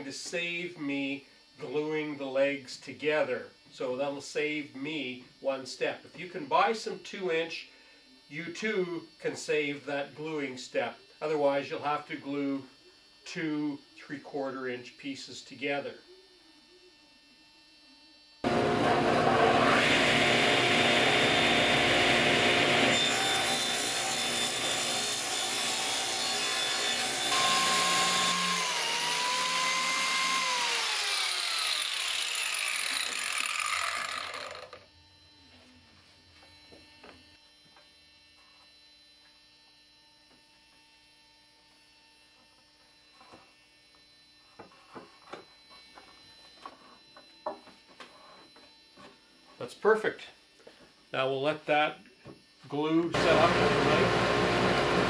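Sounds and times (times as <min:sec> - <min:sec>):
saw blade spinning down: 0:18.4 - 0:34.8, 0:53.1 - 0:55.0
radial arm saw cutting wood: 0:18.4 - 0:35.2, 0:52.8 - 0:55.0.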